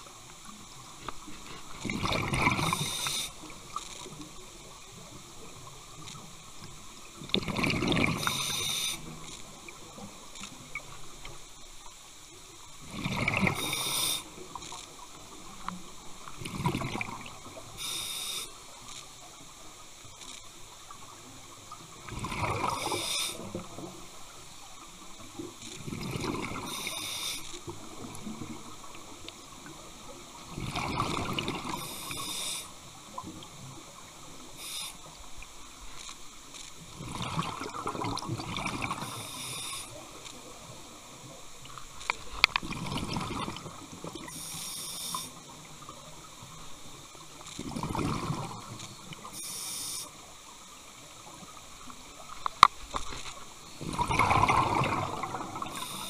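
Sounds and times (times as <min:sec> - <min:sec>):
diver breathing through regulator: 0:08.2 - 0:09.0, 0:31.7 - 0:32.7, 0:44.3 - 0:45.4, 0:49.4 - 0:50.1, 0:55.6 - 0:56.0
exhaled bubbles bursting: 0:12.9 - 0:13.6, 0:37.0 - 0:39.0, 0:42.6 - 0:44.2, 0:53.8 - 0:56.0.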